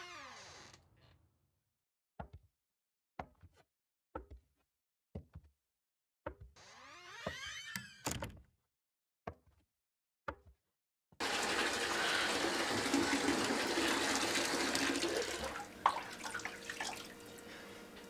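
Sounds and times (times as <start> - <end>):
tap water gushing into bathtub: 11.2 - 18.0.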